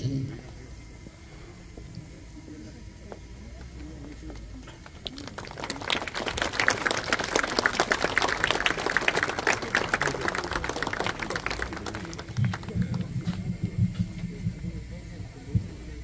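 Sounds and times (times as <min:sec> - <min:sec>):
crowd applauding: 0:04.8 - 0:13.8.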